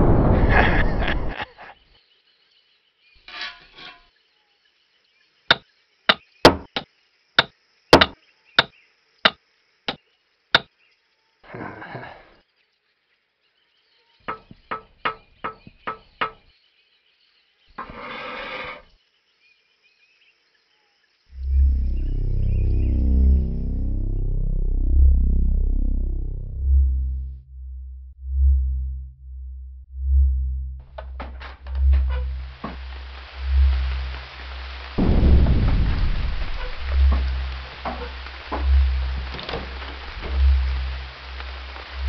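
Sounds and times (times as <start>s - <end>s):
hammer striking wood: 5.5s - 8.7s, 14.3s - 16.4s
short bursts of noise: 30.9s - 42.0s.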